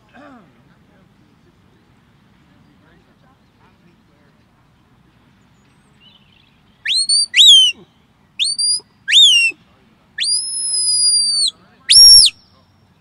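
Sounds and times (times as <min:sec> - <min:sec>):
whistled commands: 0:06.9 - 0:07.8, 0:08.4 - 0:09.6, 0:10.2 - 0:12.6.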